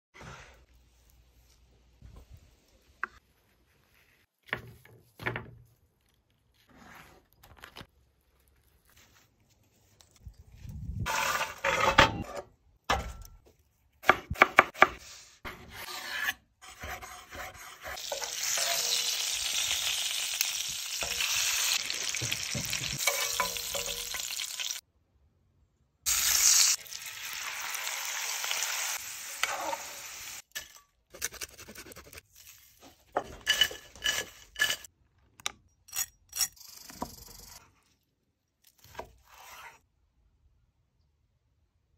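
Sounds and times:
meat sizzling in a pan: 18.0s - 24.8s, 26.1s - 30.4s
pan and tongs clattering: 21.0s - 24.5s.

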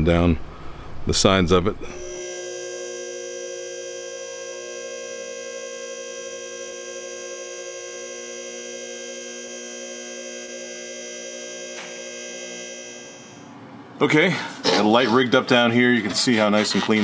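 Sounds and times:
electronic drone: 1.9s - 13.5s.

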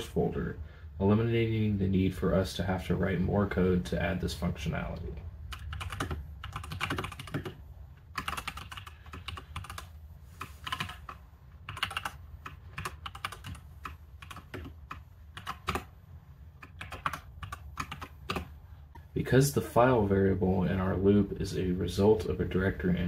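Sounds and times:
typing on keyboard: 5.5s - 15.9s, 16.6s - 18.5s.

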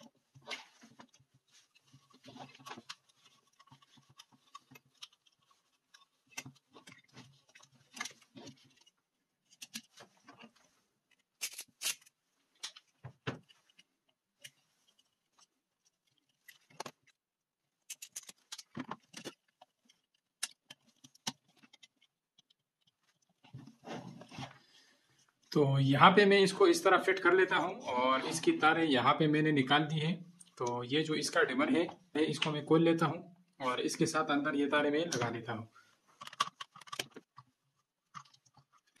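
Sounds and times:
plastic clicks and rattles: 36.2s - 37.5s.

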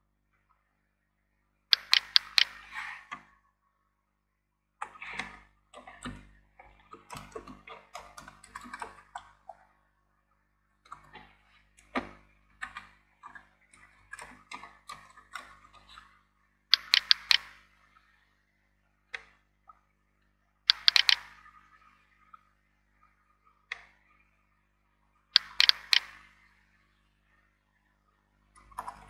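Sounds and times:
keyboard key clicks: 1.8s - 2.6s, 16.8s - 17.6s, 20.7s - 21.4s, 25.4s - 26.3s.

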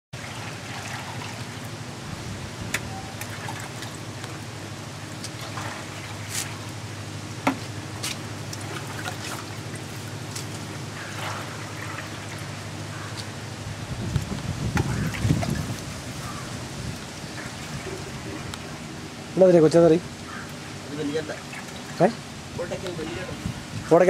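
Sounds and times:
liquid latex trickling and splashing: 0.2s - 1.8s, 3.2s - 6.8s, 8.0s - 13.1s, 14.0s - 19.4s, 21.0s - 22.2s
steady low hum: 0.2s - 24.0s.

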